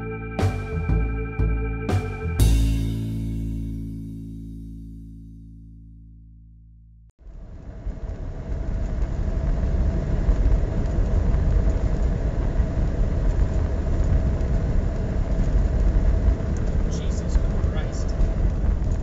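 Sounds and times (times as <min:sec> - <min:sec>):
constant drone: 0:00.0 - 0:03.4, 0:07.3 - 0:19.0.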